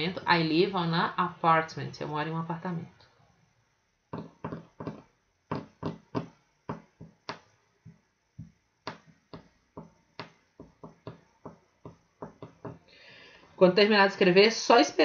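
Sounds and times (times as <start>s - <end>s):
light sharp taps: 4.2s - 12.9s.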